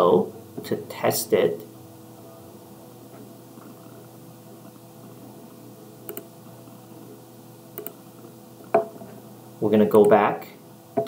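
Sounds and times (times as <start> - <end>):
low room tone hum: 0.0 - 11.0
computer mouse clicks: 6.1 - 6.3, 7.8 - 8.0.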